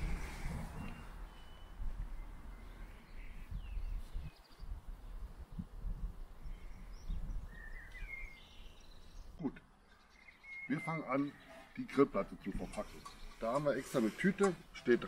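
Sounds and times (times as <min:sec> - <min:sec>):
faint bird chirps: 0:00.1 - 0:04.7, 0:06.4 - 0:13.6.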